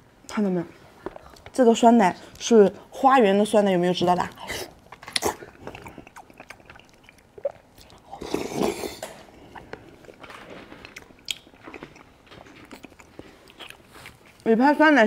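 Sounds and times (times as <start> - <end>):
wet mouth eating sounds: 4.2 - 14.5.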